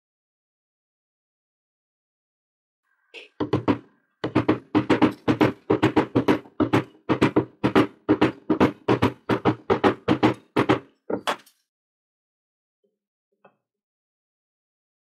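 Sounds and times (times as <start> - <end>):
small hammer tapping metal: 3.4 - 11.5.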